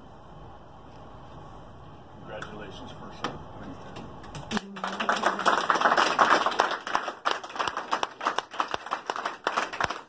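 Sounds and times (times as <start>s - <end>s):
people clapping: 4.0s - 10.0s.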